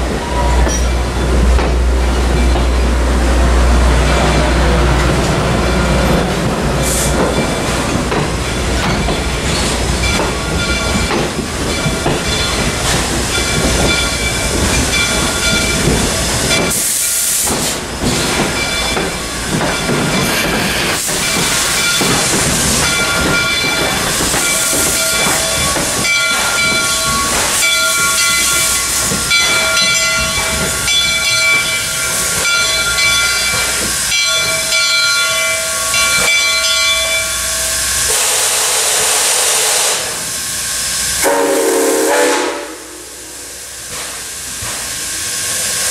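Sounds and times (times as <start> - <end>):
train wheels clicking over rail joints: 0.1 - 3.1, 3.8 - 37.3, 43.5 - 45.9
steam hissing in bursts: 9.2 - 29.7, 37.3 - 45.9.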